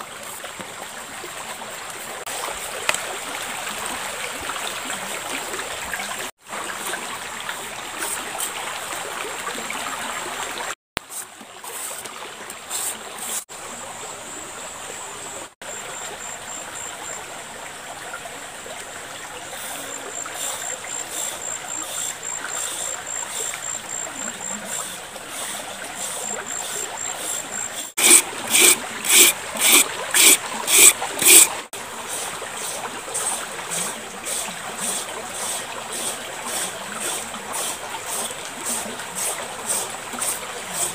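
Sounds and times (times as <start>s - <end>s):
shallow river flowing: 0.0s - 15.6s, 17.2s - 40.9s
papaya shredded by hand scraping: 27.8s - 31.6s.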